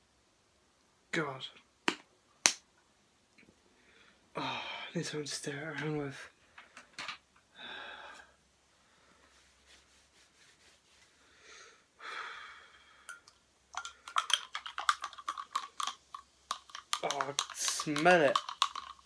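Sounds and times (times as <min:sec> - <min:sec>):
heavy breathing: 0:07.5 - 0:09.4, 0:11.2 - 0:13.2.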